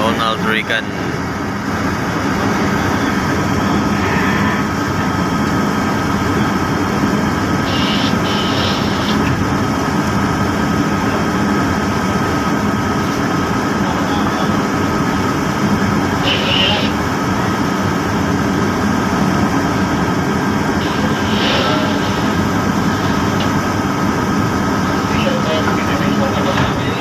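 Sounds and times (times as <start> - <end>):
boat engine rumble: 0.0 - 27.0
thin high whine: 7.6 - 9.3, 20.7 - 27.0.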